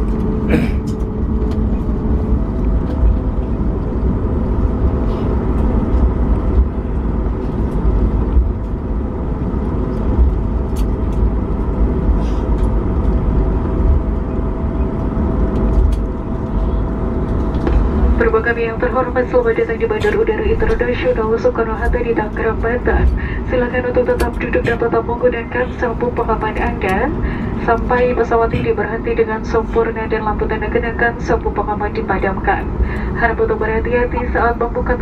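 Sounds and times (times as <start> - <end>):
low roar of engines and wheels: 0.0 - 35.0.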